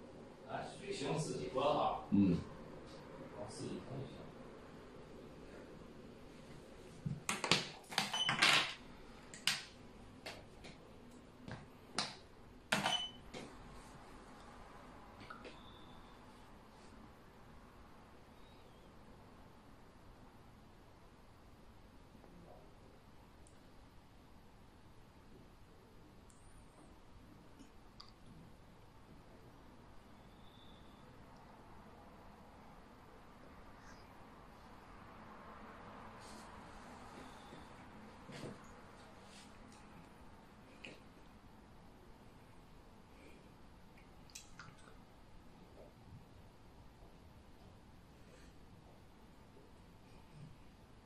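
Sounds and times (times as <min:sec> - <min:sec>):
faint high whine: 0:00.0 - 0:07.2, 0:12.6 - 0:44.2.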